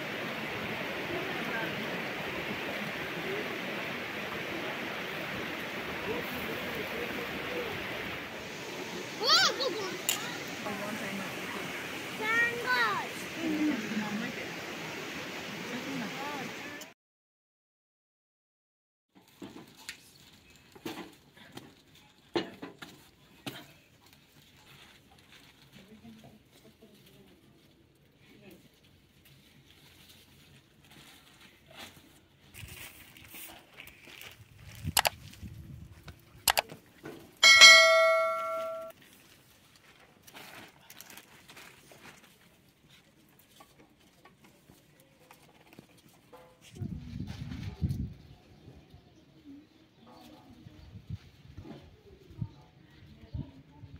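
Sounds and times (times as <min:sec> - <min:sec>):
notification bell chime: 0:37.4 - 0:38.9.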